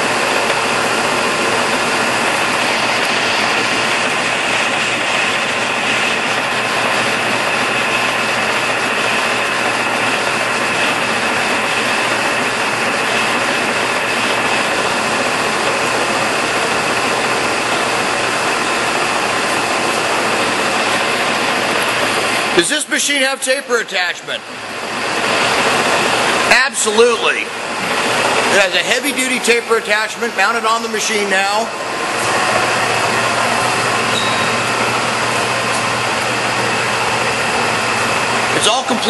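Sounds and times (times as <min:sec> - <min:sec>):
lathe whirring with high whine: 0:00.0 - 0:39.0.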